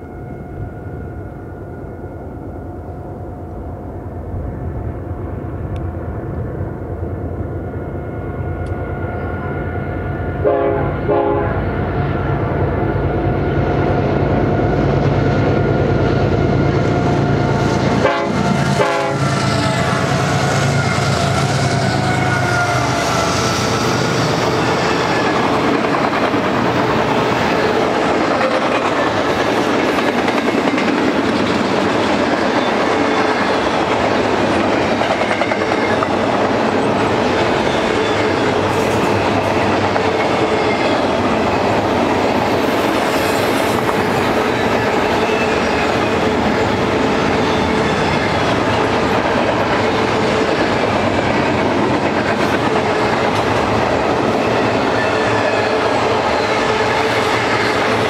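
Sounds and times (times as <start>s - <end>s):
freight train wheels clacking: 12.2s - 58.0s.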